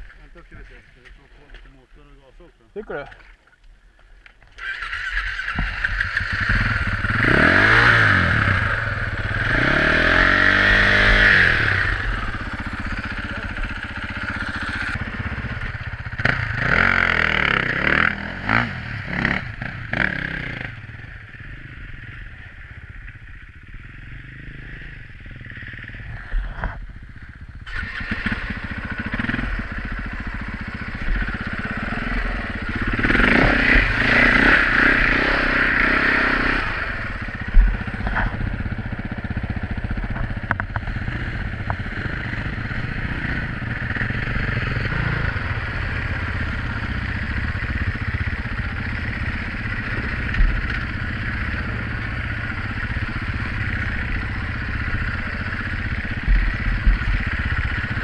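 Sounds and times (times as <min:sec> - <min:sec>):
dirt bike engine revving: 0:04.6 - 0:22.4, 0:27.4 - 0:58.0.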